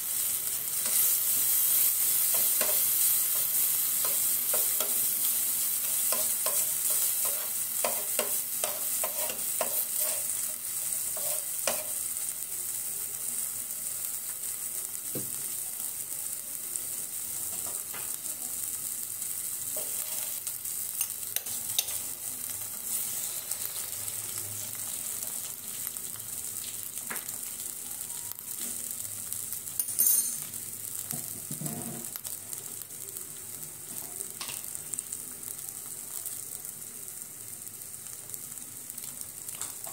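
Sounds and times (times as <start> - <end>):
egg sizzling in hot pan: 0.0 - 39.9
onion and tomato sizzling in oil: 0.0 - 39.9
metal spoon scraping a pan: 0.8 - 5.1, 5.8 - 12.0, 19.8 - 20.4, 21.0 - 22.1, 22.8 - 24.0.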